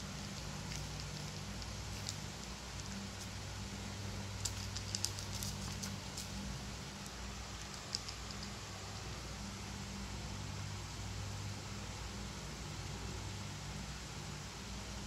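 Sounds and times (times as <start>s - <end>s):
steady low hum: 0.0s - 15.0s
cats crunching dry kibble: 0.2s - 3.4s, 4.4s - 6.4s.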